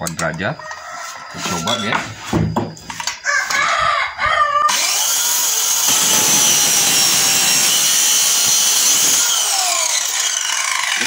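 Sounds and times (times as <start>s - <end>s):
rooster crowing: 0.6s - 2.1s, 3.2s - 4.9s
circular saw cutting wood: 4.7s - 11.0s.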